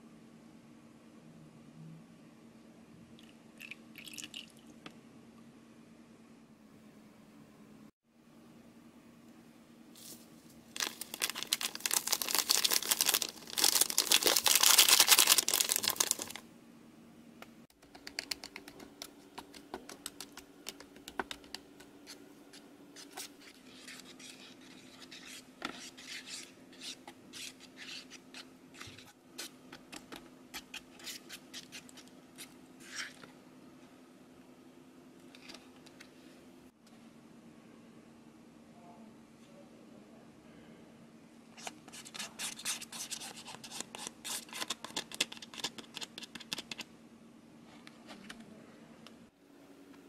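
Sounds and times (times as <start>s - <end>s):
powder rustling from paper sachet: 10.0s - 16.4s.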